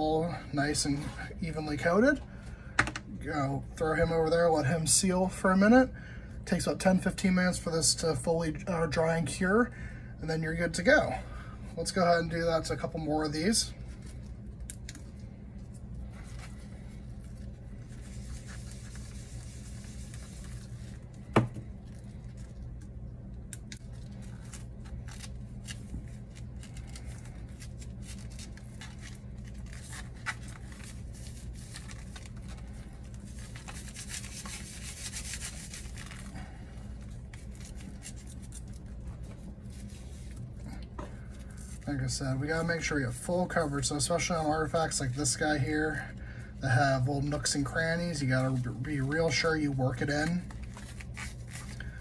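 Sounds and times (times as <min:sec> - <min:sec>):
steady low hum: 0:00.0 - 0:52.0
cloth rubbing on metal: 0:33.2 - 0:36.5.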